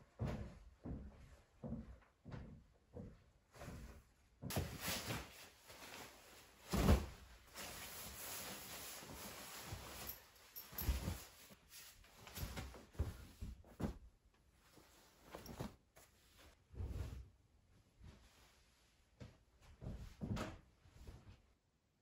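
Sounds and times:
fabric rustling and swishing: 3.6 - 21.5
sleeping bag thumps: 6.7 - 7.3.

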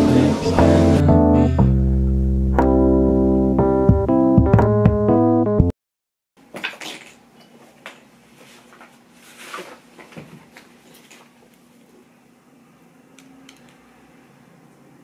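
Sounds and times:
piano music: 0.0 - 5.7.

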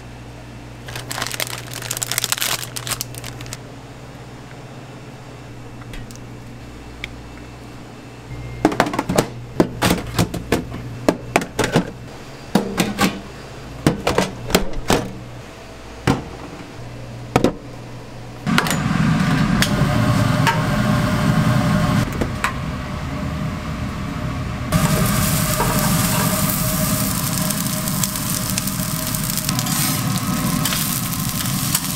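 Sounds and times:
rushing kitchen noise: 0.9 - 3.6, 18.5 - 31.9.

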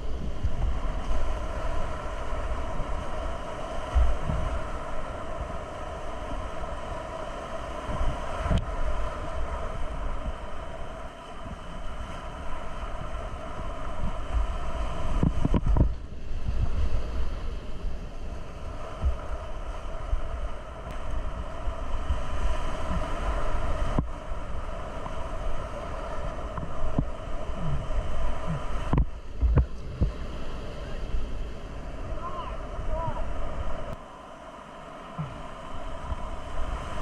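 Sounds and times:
wind buffeting microphone: 0.0 - 34.0
whitewater rapids rushing: 18.6 - 37.0.

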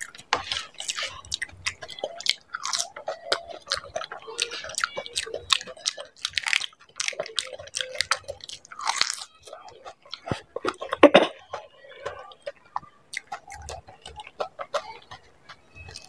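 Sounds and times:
crunching crisp shells: 0.0 - 12.6
wet chewing: 0.0 - 16.0.

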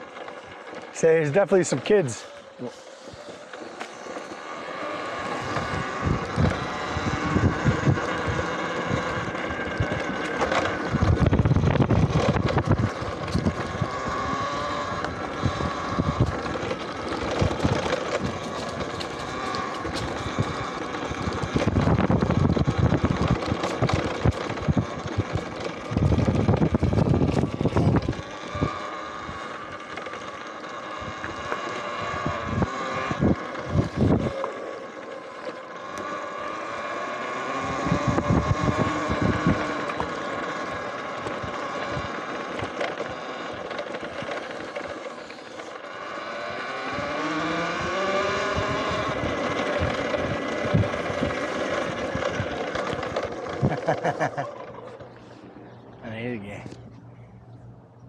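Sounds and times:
faint electric motor whine: 0.0 - 58.0
wind buffeting microphone: 5.4 - 29.4, 31.0 - 34.4, 37.6 - 42.2, 46.9 - 53.8.

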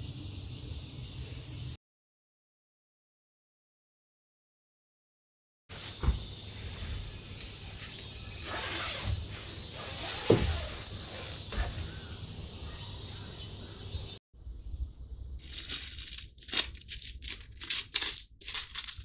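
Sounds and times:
shrill insect buzzing: 5.8 - 14.2.

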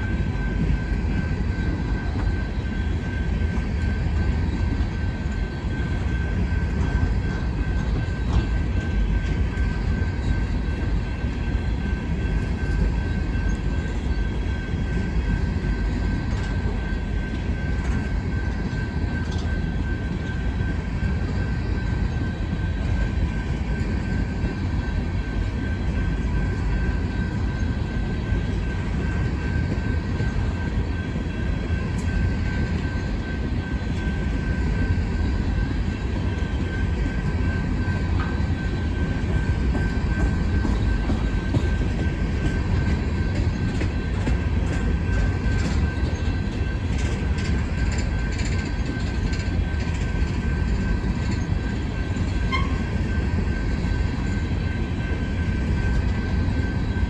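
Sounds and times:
freight train rumble: 0.0 - 57.0.

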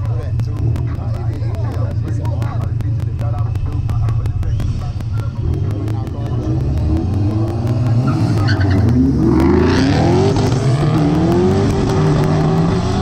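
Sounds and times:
car engines revving: 0.0 - 13.0
tires squealing: 4.5 - 13.0.

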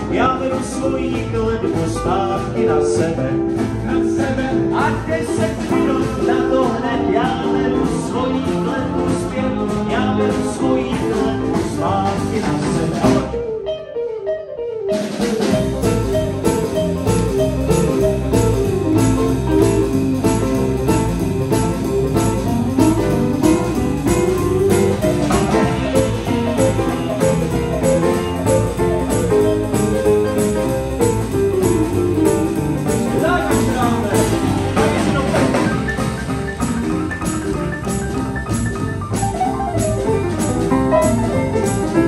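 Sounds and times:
double bass: 0.0 - 13.5, 15.3 - 42.0
guitar: 0.0 - 42.0
upright piano: 0.0 - 42.0
drum kit with cymbal strokes: 15.0 - 42.0.

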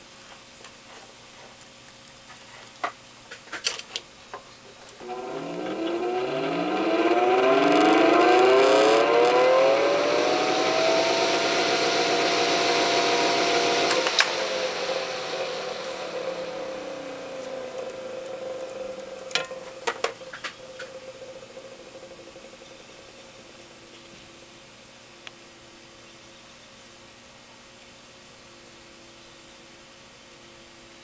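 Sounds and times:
box fan whining and humming: 0.0 - 31.0.

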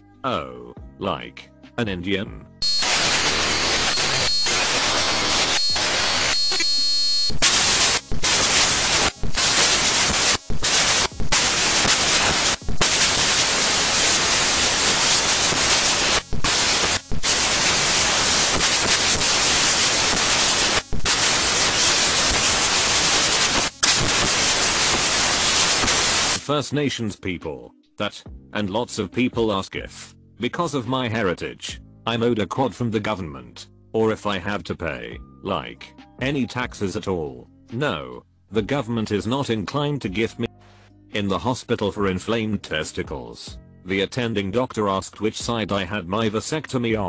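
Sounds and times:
loud static hiss: 2.6 - 26.4.

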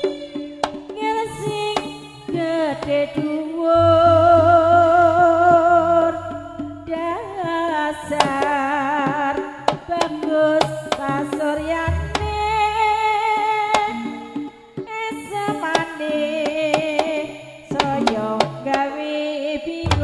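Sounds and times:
hand drum strokes: 0.0 - 19.0, 19.7 - 20.0
voice singing wavering notes: 3.7 - 8.0
deep low tones: 3.8 - 8.0.

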